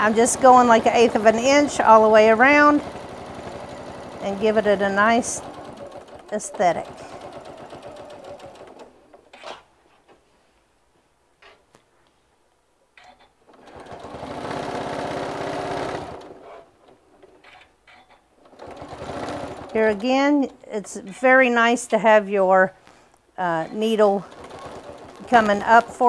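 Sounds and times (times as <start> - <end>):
sewing machine stitching: 0.0 - 9.6, 13.5 - 21.1, 23.7 - 26.0.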